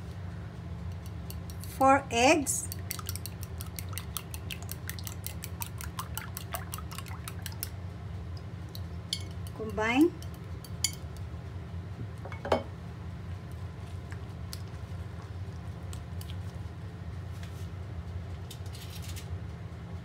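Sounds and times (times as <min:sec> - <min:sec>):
steady low hum: 0:00.0 - 0:20.0
spatula squishing wet food: 0:02.6 - 0:07.8, 0:13.4 - 0:17.5.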